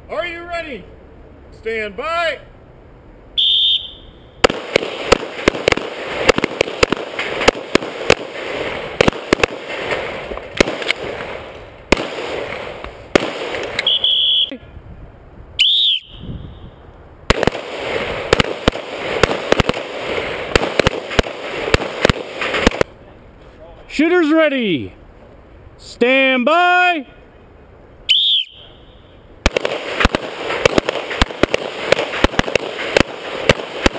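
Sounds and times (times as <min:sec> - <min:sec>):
rapid pistol fire: 0:04.4 - 0:10.0, 0:10.6 - 0:11.2, 0:11.9 - 0:12.6, 0:13.2 - 0:13.7, 0:17.3 - 0:22.9, 0:29.4 - 0:33.9.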